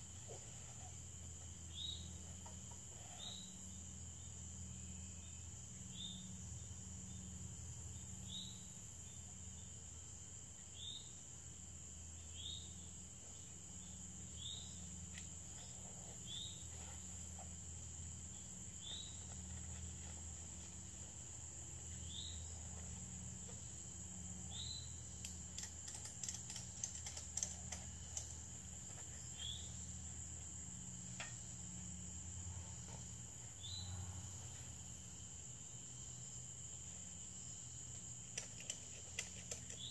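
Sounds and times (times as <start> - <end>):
crickets and insects droning: 0.0 - 39.9
sharp clicks and knocks: 38.2 - 39.9.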